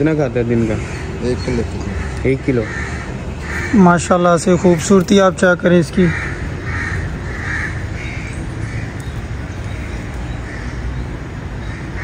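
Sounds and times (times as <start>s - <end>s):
bird cawing harshly: 0.6s - 12.0s.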